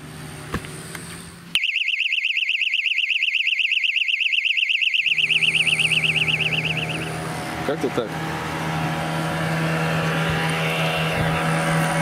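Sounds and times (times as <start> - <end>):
alarm siren warbling: 1.6 - 7.6.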